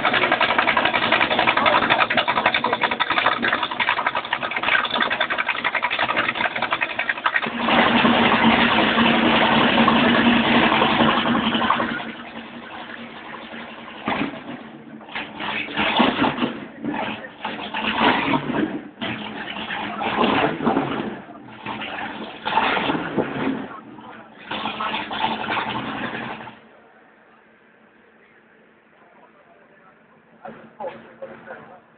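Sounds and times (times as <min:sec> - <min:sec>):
small engine clattering: 0:00.0 - 0:23.8, 0:24.4 - 0:26.6.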